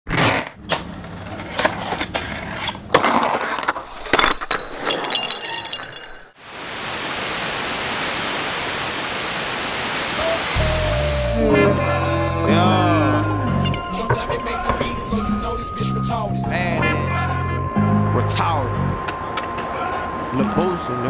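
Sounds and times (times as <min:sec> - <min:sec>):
video static hiss: 0:06.4 - 0:10.6.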